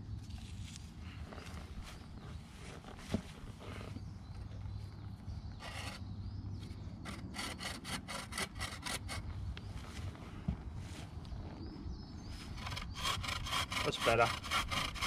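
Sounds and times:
bow saw cutting wood: 0:05.6 - 0:06.0, 0:07.1 - 0:09.2, 0:12.6 - 0:15.0.

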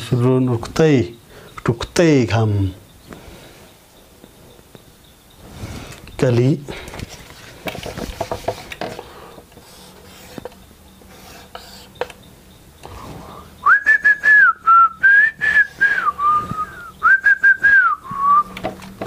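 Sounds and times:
marker on a whiteboard: 0:07.4 - 0:12.2
man whistling a tune: 0:13.6 - 0:18.6.

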